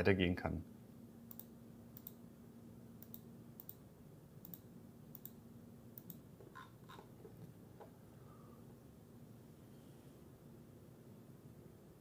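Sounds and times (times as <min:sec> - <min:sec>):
low steady hum: 0:00.0 - 0:12.0
computer mouse clicks: 0:01.3 - 0:02.2, 0:03.0 - 0:03.8, 0:04.4 - 0:05.4, 0:06.0 - 0:07.1.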